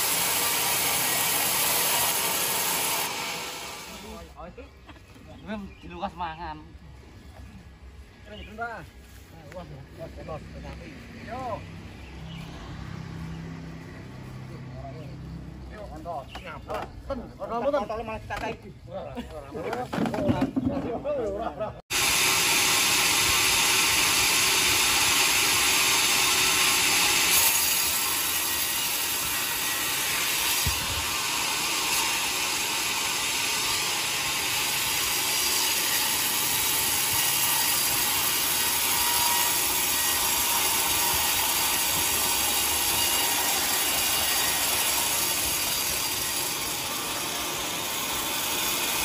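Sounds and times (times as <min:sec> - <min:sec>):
band saw sawing through log: 0:00.0 - 0:04.3, 0:21.9 - 0:49.0.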